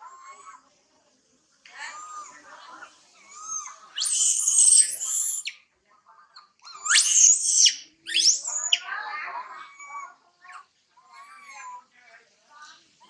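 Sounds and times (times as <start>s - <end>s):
monkey whimpering cries: 3.4s - 5.5s, 6.8s - 8.8s
monkey screaming: 4.0s - 5.5s, 6.8s - 8.8s.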